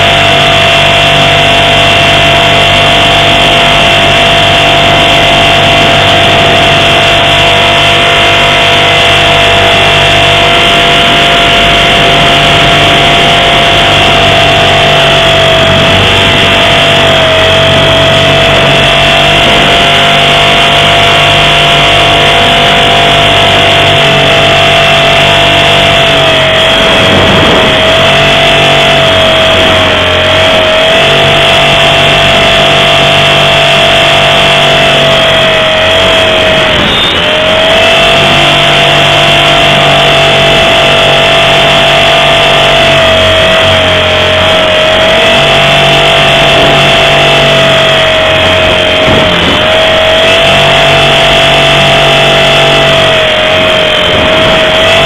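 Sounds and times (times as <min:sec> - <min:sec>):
rc helicopter motor whine: 0:00.0 - 0:55.0.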